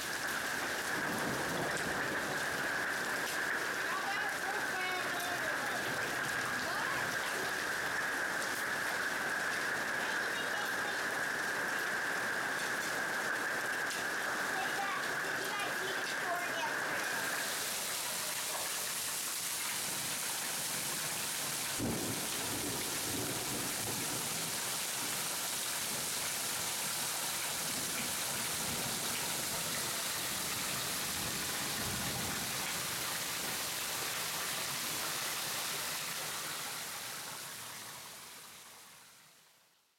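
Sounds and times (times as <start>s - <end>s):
heavy rain and hail: 0.0s - 38.7s
low thunder rumble: 0.8s - 4.4s, 21.8s - 24.6s
thunder crack: 0.9s - 3.9s, 21.8s - 24.5s.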